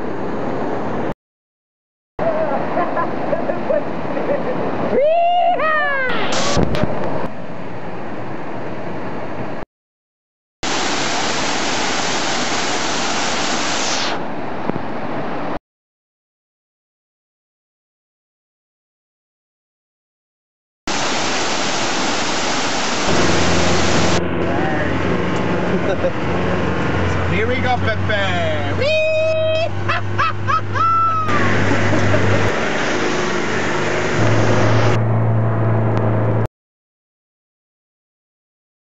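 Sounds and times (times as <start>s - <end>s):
road and wind noise in vehicle: 0.0s - 1.1s, 2.2s - 9.6s, 14.2s - 15.6s, 21.1s - 36.5s
high gliding whoops: 4.9s - 6.6s, 28.8s - 31.7s
waterfall roaring: 5.7s - 7.1s, 10.6s - 15.6s, 20.9s - 29.9s, 30.6s - 35.0s
low engine hum: 6.4s - 9.6s, 20.9s - 36.5s.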